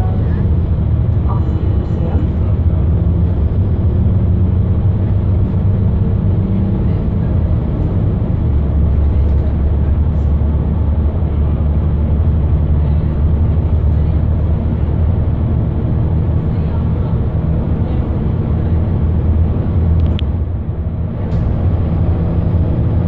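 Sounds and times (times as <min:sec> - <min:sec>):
bus diesel engine accelerating: 0:00.0 - 0:23.0.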